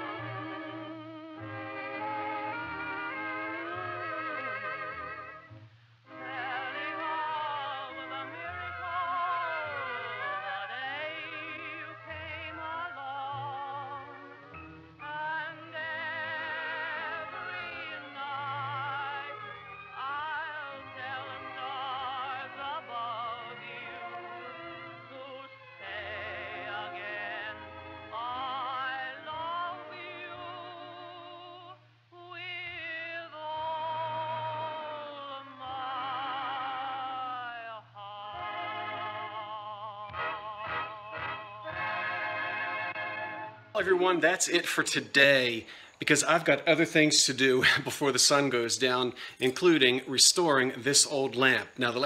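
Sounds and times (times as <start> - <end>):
operatic singing with accompaniment: 6.1 - 46.8.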